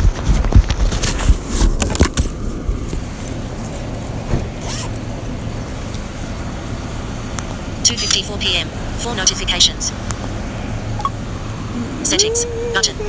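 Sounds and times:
low rumble of road traffic: 0:00.0 - 0:13.0.

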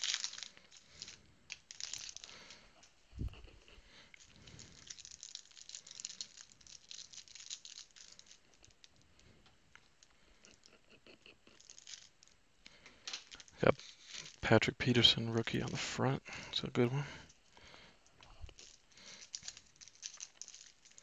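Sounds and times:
foil wrapper crinkling and tearing: 0:00.0 - 0:02.7, 0:04.0 - 0:09.3, 0:11.5 - 0:12.4, 0:13.0 - 0:14.5, 0:18.4 - 0:21.0.

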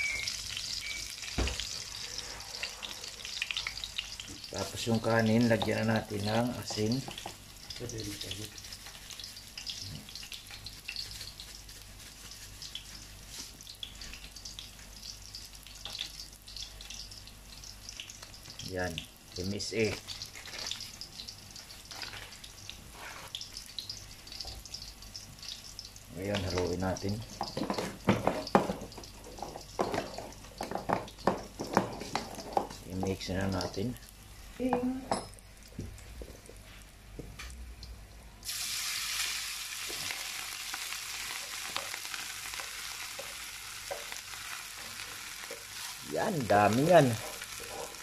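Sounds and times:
food sizzling in a pot: 0:00.0 - 0:48.0
light ticks and scrapes in wok: 0:06.7 - 0:18.6.

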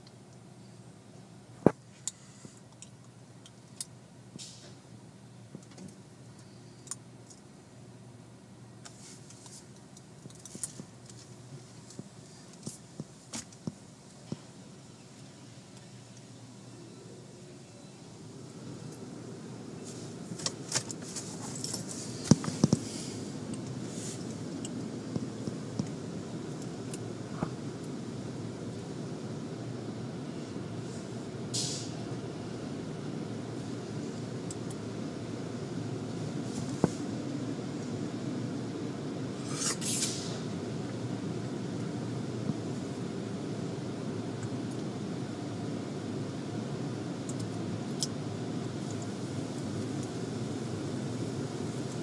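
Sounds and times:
car wash low hum: 0:00.0 - 0:52.0
short hiss: 0:04.4 - 0:04.8, 0:19.8 - 0:24.4, 0:30.9 - 0:32.0, 0:39.4 - 0:40.5
spray hiss: 0:30.8 - 0:32.1, 0:39.4 - 0:40.6.

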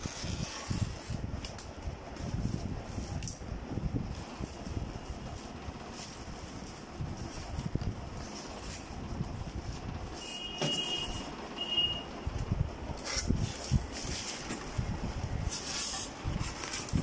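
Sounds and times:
styrofoam and cardboard rustling: 0:00.0 - 0:01.5, 0:13.0 - 0:17.0.

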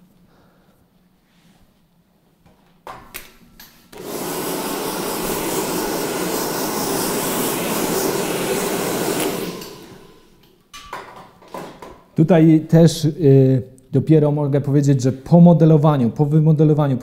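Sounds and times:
hair dryer blowing: 0:03.9 - 0:10.4.

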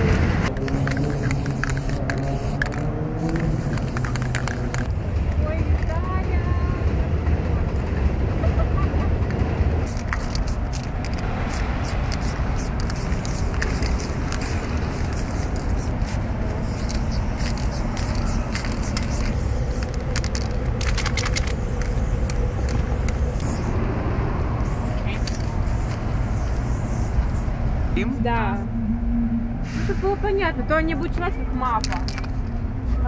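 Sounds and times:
low background rumble: 0:00.0 - 0:32.8
spray paint cans hissing: 0:00.5 - 0:06.0, 0:09.8 - 0:23.8, 0:24.6 - 0:27.5, 0:31.8 - 0:32.5.

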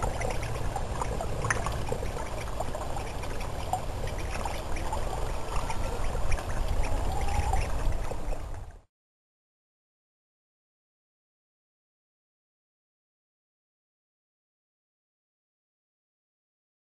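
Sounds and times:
low water rumble: 0:00.0 - 0:08.9
water trickling into pond: 0:00.0 - 0:08.9.

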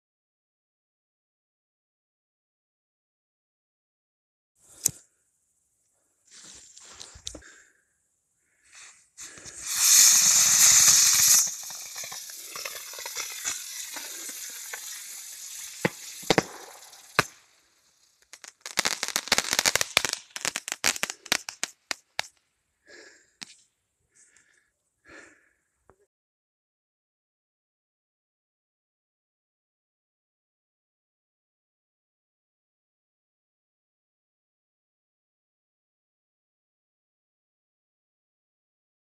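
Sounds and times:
rocket motors hissing: 0:09.2 - 0:17.6
crackling pops: 0:09.2 - 0:22.4.

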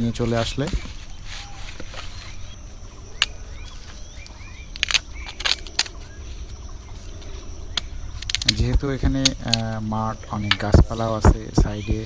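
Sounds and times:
faint bird calls: 0:00.0 - 0:12.0
firewood sticks knocking: 0:07.7 - 0:11.8.

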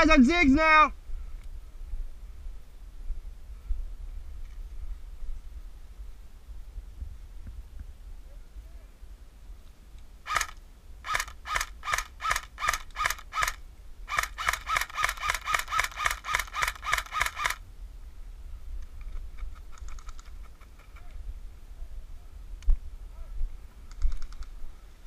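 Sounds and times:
airsoft rifle shots: 0:10.3 - 0:17.6.

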